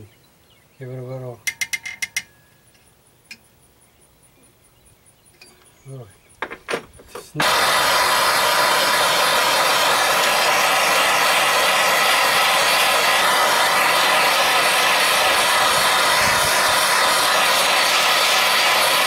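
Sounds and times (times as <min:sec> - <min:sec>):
gas torch hissing: 0:06.7 - 0:19.0.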